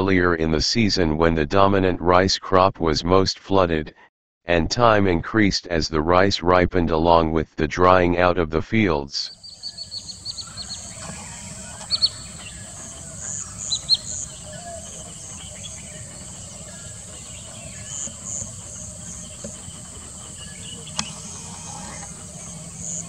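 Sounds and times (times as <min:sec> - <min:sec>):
bird chirps: 0:09.3 - 0:23.0
high-pitched insect chorus: 0:09.4 - 0:23.0.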